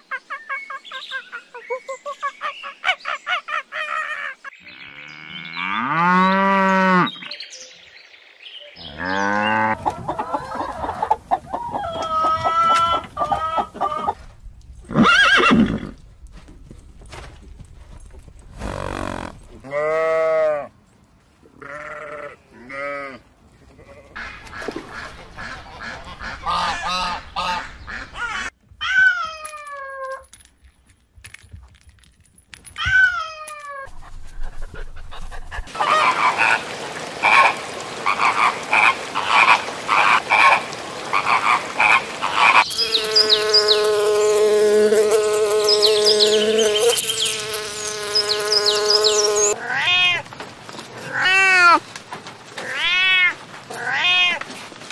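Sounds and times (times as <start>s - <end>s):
bumblebee buzzing: 42.6s - 49.6s.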